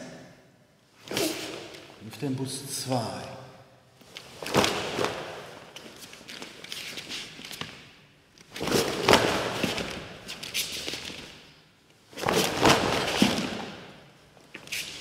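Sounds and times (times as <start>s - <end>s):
cloth rushing: 12.2s - 13.8s.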